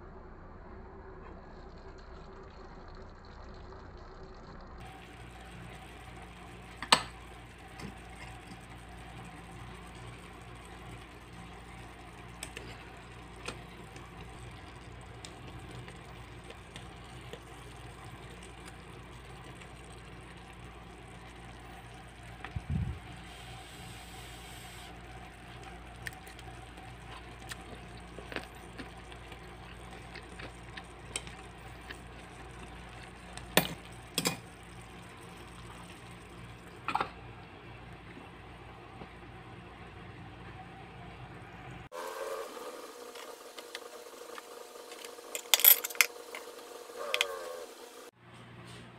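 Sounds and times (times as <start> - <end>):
food simmering bubbling: 1.3 - 36.9.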